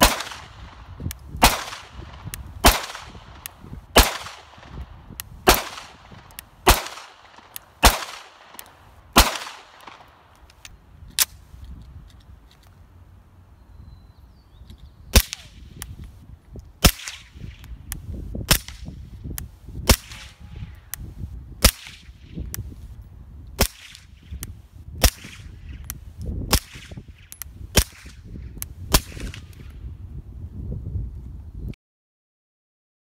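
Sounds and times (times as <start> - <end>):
suppressed pistol shots: 0.0 - 0.8, 1.4 - 4.8, 5.4 - 10.2.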